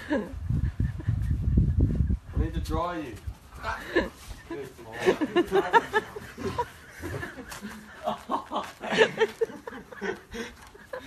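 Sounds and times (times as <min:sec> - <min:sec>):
person laughing: 0:00.0 - 0:01.5, 0:03.6 - 0:11.0.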